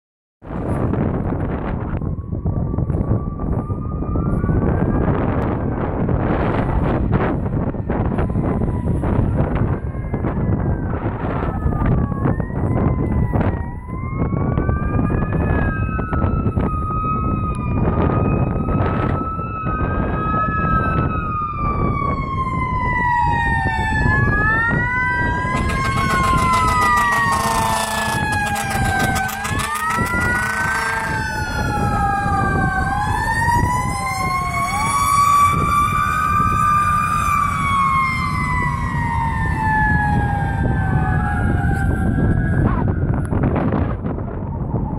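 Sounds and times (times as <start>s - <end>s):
low engine and traffic rumble: 0.5s - 44.9s
electronic sirens wailing: 0.6s - 44.9s
mechanical siren winding up: 25.3s - 42.3s
air horn blasts: 25.5s - 31.6s.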